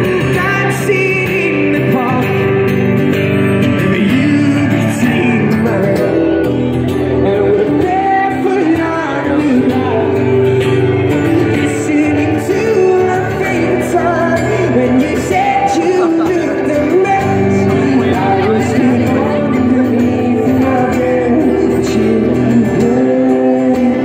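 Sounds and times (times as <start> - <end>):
man singing: 0.0 - 24.0
strummed acoustic guitar: 0.0 - 24.0.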